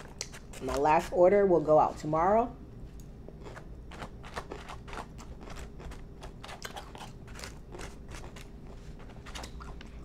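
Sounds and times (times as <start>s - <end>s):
person chewing crunchy food: 3.3s - 10.0s.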